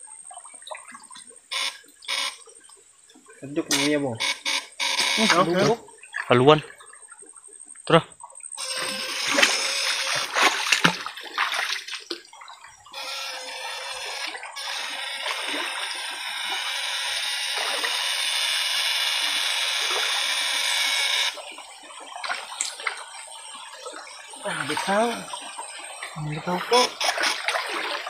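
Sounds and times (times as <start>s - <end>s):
water splashing from wading: 0.2s - 28.0s.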